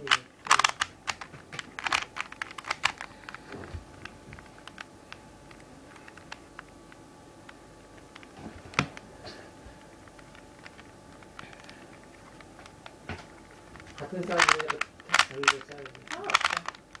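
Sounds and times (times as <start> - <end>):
puzzle cube clicking: 0.0 - 3.4, 13.7 - 17.0.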